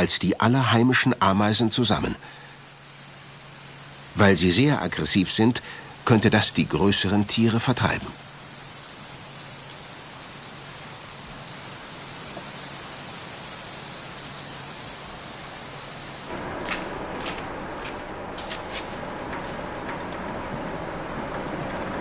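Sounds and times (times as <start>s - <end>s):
steady hissing ambience: 0.0s - 22.0s
rough background noise: 9.4s - 22.0s.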